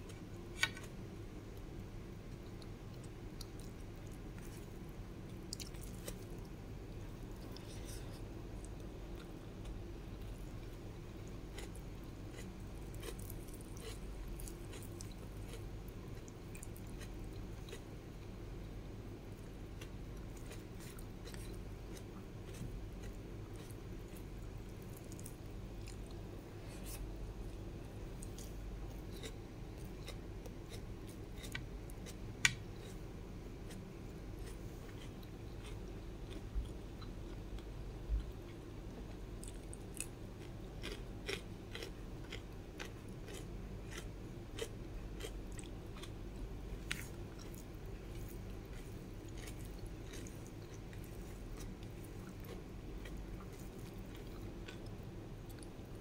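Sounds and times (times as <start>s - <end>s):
low steady hum: 0.0s - 56.0s
chewing mouth sounds: 39.4s - 46.2s, 46.8s - 55.8s.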